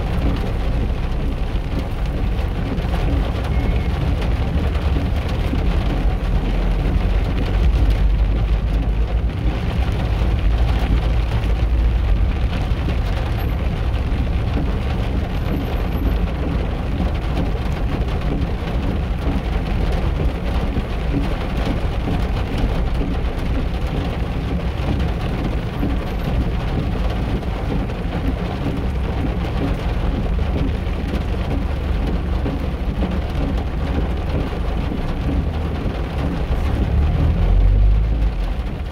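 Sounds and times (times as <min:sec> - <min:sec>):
steady rain: 0:00.0 - 0:38.9
traffic on wet streets: 0:00.0 - 0:38.9.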